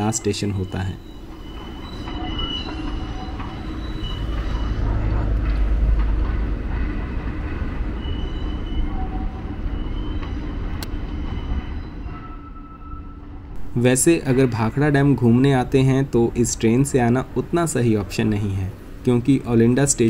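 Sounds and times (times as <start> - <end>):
passenger train rumbling past: 0.0 - 20.0.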